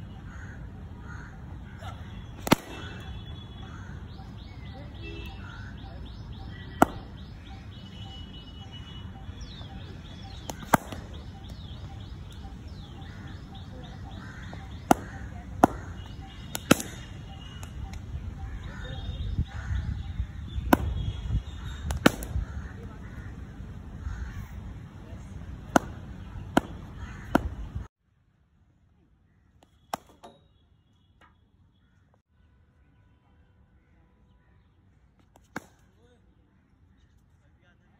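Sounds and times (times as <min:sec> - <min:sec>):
bird chirping: 0:00.0 - 0:22.5
cricket ball struck by bat: 0:02.4 - 0:03.1, 0:06.7 - 0:07.2, 0:10.4 - 0:11.6, 0:14.6 - 0:17.6, 0:20.6 - 0:21.1, 0:21.8 - 0:22.5, 0:25.7 - 0:27.6, 0:29.8 - 0:30.5.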